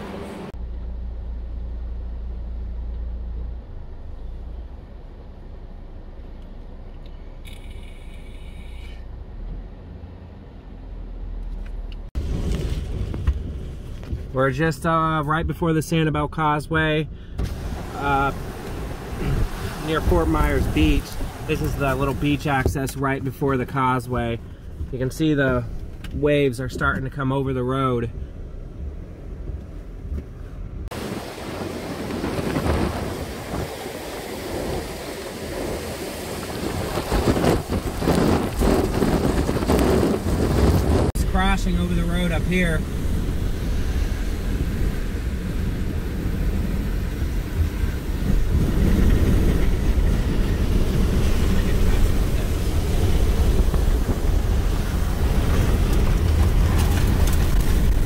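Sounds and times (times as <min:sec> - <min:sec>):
rain: 0:17.4 - 0:22.4, 0:30.9 - 0:41.1, 0:41.8 - 0:58.0
heavy surf breaking: 0:17.4 - 0:24.3, 0:30.9 - 0:58.0
wind buffeting microphone: 0:30.9 - 0:58.0.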